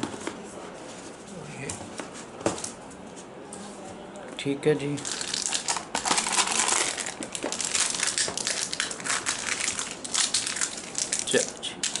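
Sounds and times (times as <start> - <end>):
plastic film crinkling: 5.0 - 12.0.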